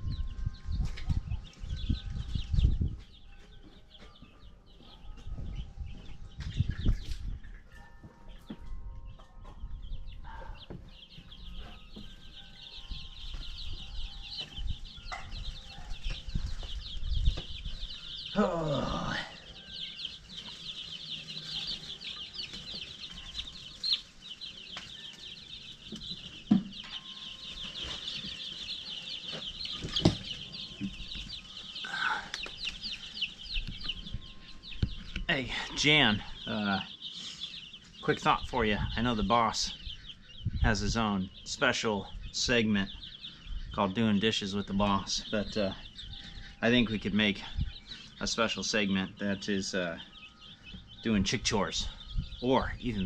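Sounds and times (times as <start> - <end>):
baby chicks peeping: 0.0 - 53.0.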